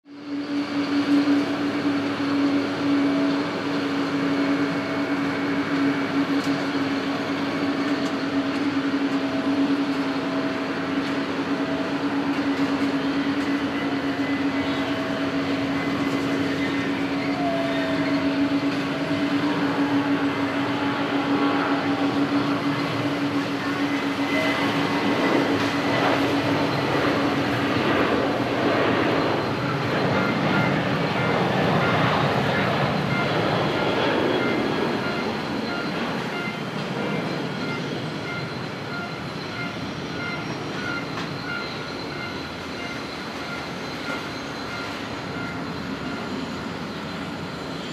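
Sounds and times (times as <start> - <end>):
jet engine roar: 0.0 - 47.9.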